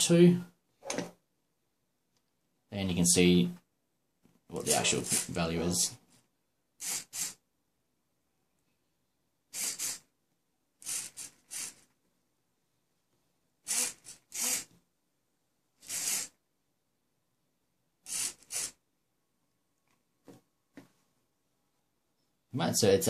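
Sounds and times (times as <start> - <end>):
small servo motor whirring: 4.7 - 5.4, 6.8 - 7.4, 9.5 - 10.1, 10.8 - 11.9, 13.7 - 14.7, 15.8 - 16.4, 18.0 - 18.8.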